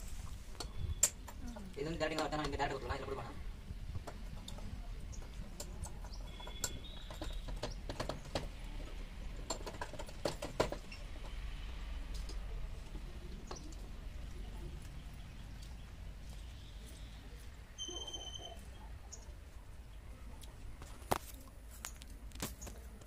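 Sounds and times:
clicks and taps from wiring work: 0:00.6 - 0:03.1, 0:04.0 - 0:11.4.

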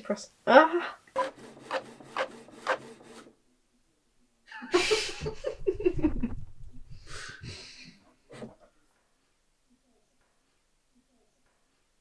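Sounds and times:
printer humming and clicking: 0:01.1 - 0:03.3
hissing breath-like burst: 0:07.0 - 0:07.9.

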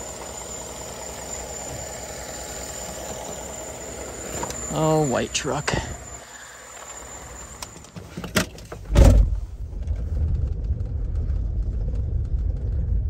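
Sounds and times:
truck engine rumbling: 0:00.0 - 0:13.0
truck door shutting: 0:07.7 - 0:09.4.

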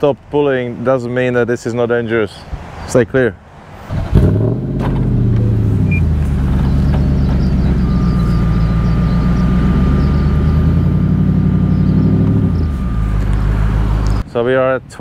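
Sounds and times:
engine running at low revs: 0:03.9 - 0:14.2.

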